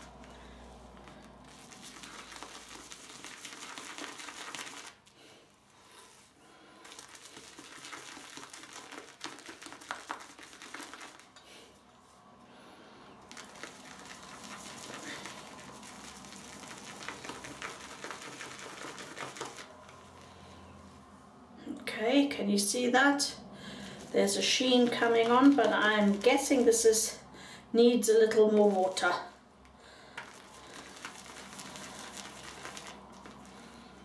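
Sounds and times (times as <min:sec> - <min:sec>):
shaving brush swishing lather: 0:00.0 - 0:05.2, 0:06.0 - 0:11.3, 0:13.3 - 0:20.2, 0:23.8 - 0:27.1, 0:28.0 - 0:29.3, 0:30.2 - 0:34.0.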